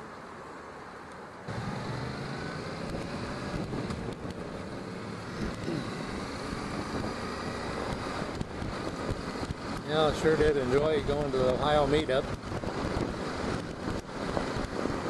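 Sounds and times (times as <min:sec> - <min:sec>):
motorcycle engine accelerating: 0:01.5 - 0:15.0
wind noise on microphone: 0:02.8 - 0:04.8, 0:06.5 - 0:15.0.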